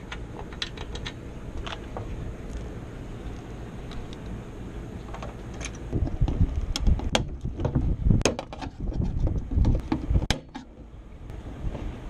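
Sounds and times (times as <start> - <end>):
sharp clicks and knocks: 0.0 - 2.1, 5.1 - 10.8.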